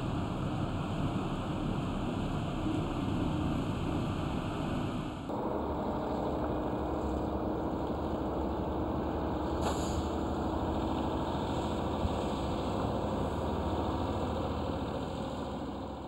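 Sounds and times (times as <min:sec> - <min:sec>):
heavy machinery engine rumbling: 0:05.1 - 0:16.0
short hiss: 0:09.6 - 0:10.1.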